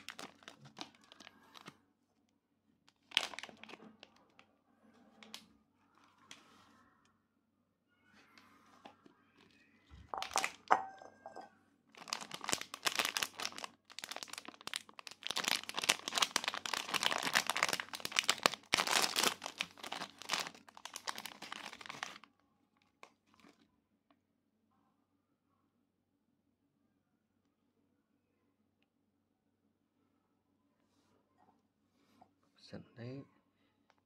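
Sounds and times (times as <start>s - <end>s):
plastic wrapper crinkling: 0.0s - 1.8s, 2.9s - 4.4s, 9.4s - 23.6s.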